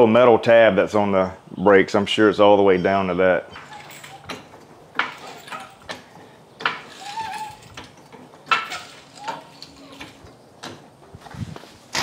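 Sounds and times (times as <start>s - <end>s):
short squeak: 3.5s - 4.5s, 6.8s - 8.0s
floor jack clanking: 3.5s - 12.0s.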